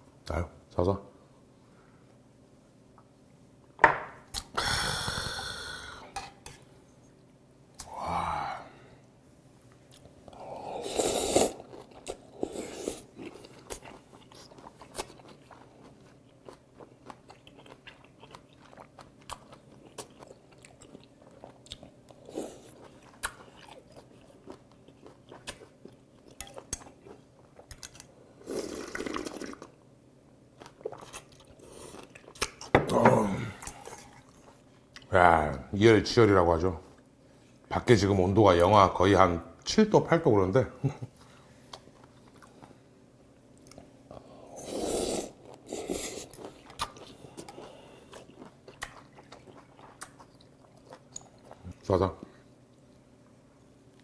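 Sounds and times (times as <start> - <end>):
chewing and crunching: 11.5 - 28.3, 30.6 - 32.7, 45.4 - 53.1
sipping and slurping: 28.4 - 29.7.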